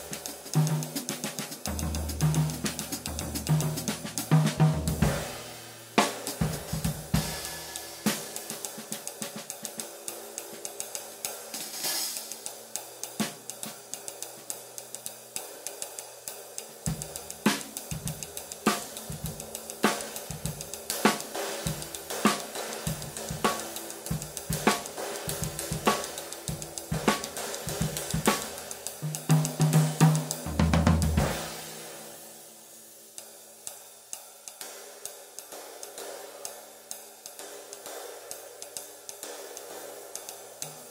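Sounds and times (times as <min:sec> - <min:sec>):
bass drum: 0:00.0 - 0:08.3, 0:16.9 - 0:31.7
sizzle ride cymbal: 0:00.0 - 0:40.9.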